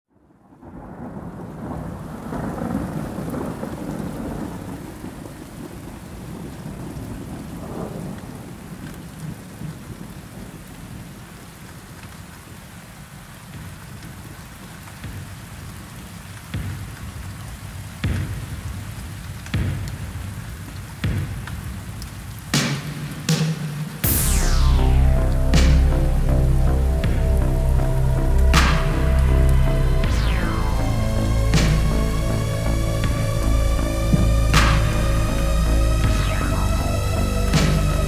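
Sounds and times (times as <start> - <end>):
rain falling: 0.2 - 38.0
thunder rumbling: 0.5 - 9.1, 24.0 - 38.0
sharp thunder cracks: 24.0 - 38.0.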